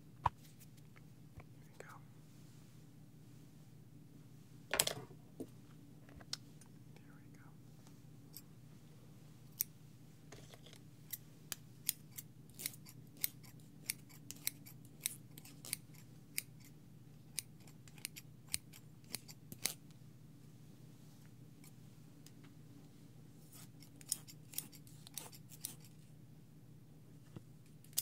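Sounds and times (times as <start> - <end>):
scissors snipping: 11.8 - 16.5, 23.6 - 26.0.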